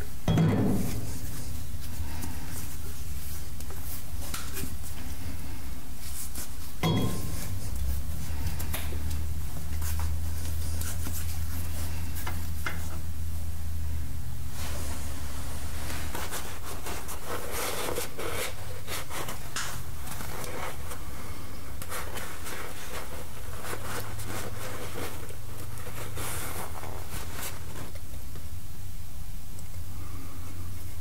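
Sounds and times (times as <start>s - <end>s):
steady low hum: 0.0s - 31.0s
handling rustle: 14.5s - 28.4s.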